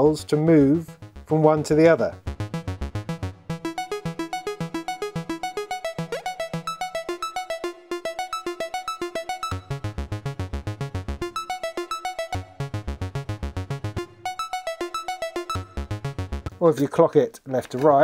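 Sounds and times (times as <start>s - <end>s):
synthesizer bass notes: 0.0s - 16.6s
synthesizer plucked notes: 0.0s - 16.7s.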